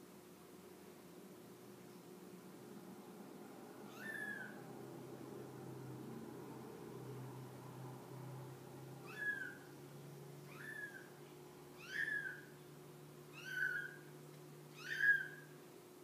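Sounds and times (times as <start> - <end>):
kitten mewing: 3.9 - 4.6, 9.0 - 9.6.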